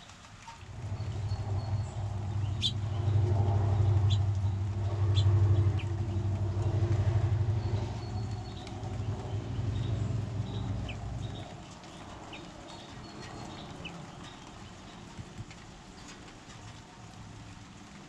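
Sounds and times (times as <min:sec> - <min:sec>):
vehicle engine humming: 0:00.3 - 0:13.8.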